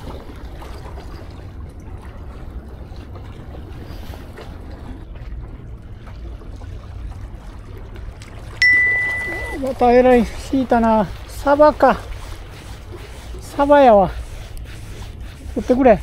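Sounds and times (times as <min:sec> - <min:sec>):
faint sea water wash: 0:00.0 - 0:16.0.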